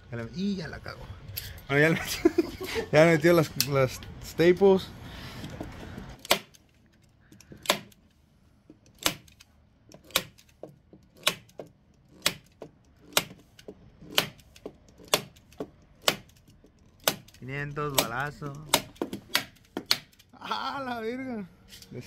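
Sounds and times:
staple gun snapping: 0:06.2 - 0:06.6, 0:07.4 - 0:08.0, 0:08.9 - 0:11.6, 0:17.0 - 0:20.2.

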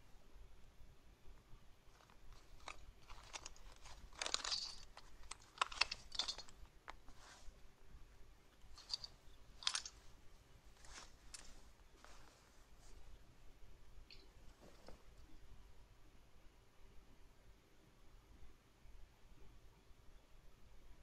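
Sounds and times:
clothing rustling: 0:01.8 - 0:15.4
fastening clicks: 0:01.9 - 0:07.2, 0:08.5 - 0:10.1.

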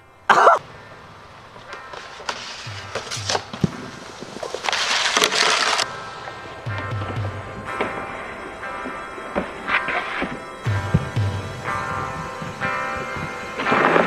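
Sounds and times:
snowboard scraping over snow: 0:01.8 - 0:06.8
music with low beat: 0:02.6 - 0:04.6, 0:05.9 - 0:14.0.

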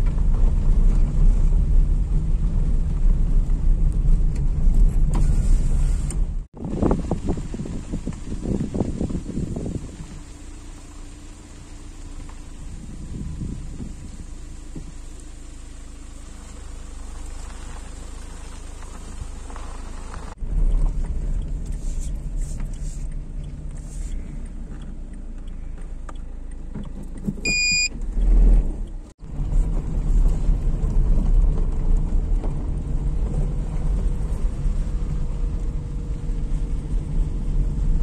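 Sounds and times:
car engine and tyre rumble: 0:00.0 - 0:38.0
short high electronic beep: 0:27.4 - 0:27.9.

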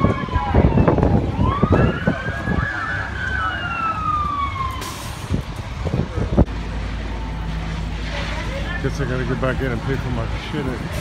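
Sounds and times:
fire engine siren winding down: 0:00.0 - 0:06.1
vehicle engine humming: 0:02.2 - 0:11.0.

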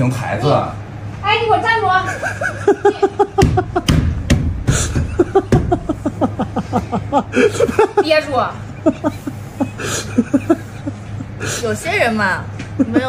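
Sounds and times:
woman laughing loudly: 0:02.0 - 0:03.9, 0:04.7 - 0:11.6
sharp knocks: 0:03.4 - 0:05.8.

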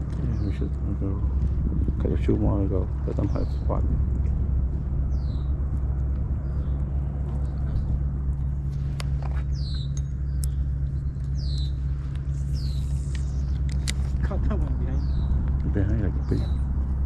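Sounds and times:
low engine drone: 0:00.0 - 0:17.0
sharp clicks: 0:09.0 - 0:12.3, 0:13.0 - 0:14.2.

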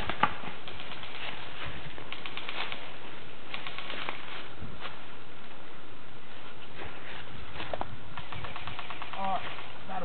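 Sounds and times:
sharp clicks: 0:00.0 - 0:01.4, 0:02.1 - 0:02.9, 0:03.5 - 0:04.2, 0:07.7 - 0:09.7.

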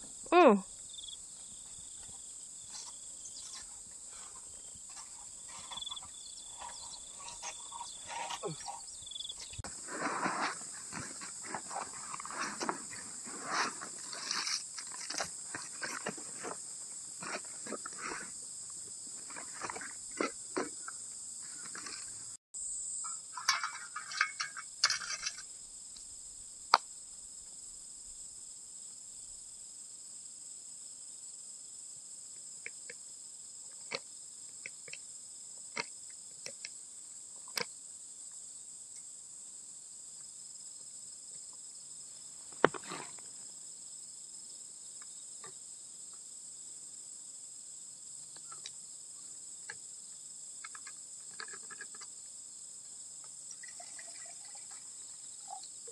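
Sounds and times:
insect chirring: 0:00.0 - 0:55.9
rustling and knocks: 0:23.0 - 0:25.4.

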